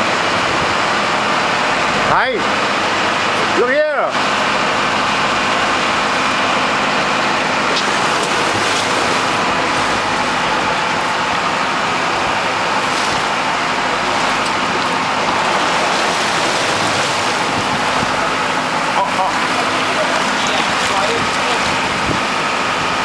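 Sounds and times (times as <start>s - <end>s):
boat engine running: 0.0s - 23.0s
wind: 0.0s - 23.0s
sea rushing: 4.2s - 23.0s.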